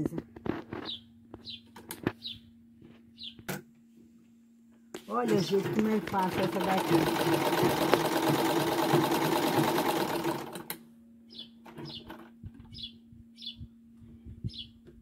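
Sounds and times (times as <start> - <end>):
bird chirping: 0.8 - 2.5, 3.1 - 3.5, 11.3 - 13.7, 14.4 - 14.8
sewing machine running: 5.3 - 10.8.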